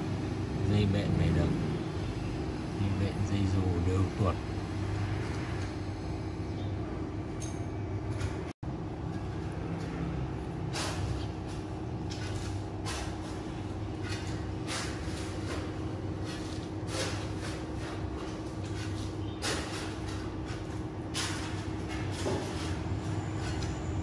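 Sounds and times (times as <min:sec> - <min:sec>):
low background rumble and hum: 0:00.0 - 0:24.0.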